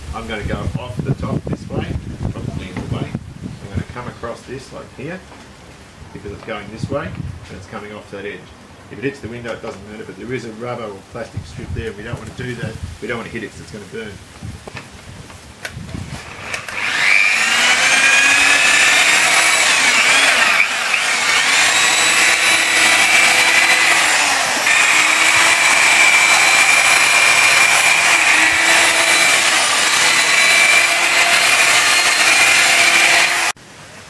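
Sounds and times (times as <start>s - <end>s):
rotary polisher motor whine: 16.3s - 33.6s.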